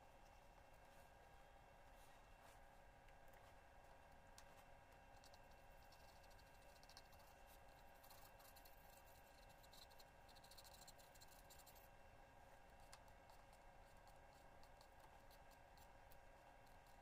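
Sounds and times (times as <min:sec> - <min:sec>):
faint steady hum: 0:00.0 - 0:17.0
pencil scratching on paper: 0:05.2 - 0:11.9, 0:12.6 - 0:17.0.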